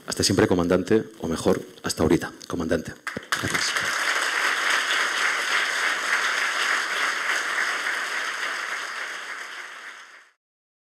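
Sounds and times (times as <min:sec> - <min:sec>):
audience applauding: 0:03.0 - 0:10.4.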